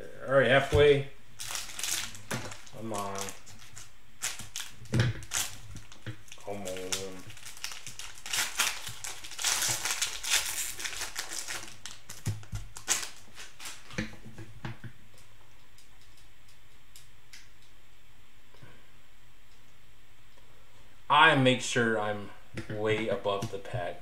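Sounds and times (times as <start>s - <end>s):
plastic wrapper crinkling: 1.4s - 14.0s.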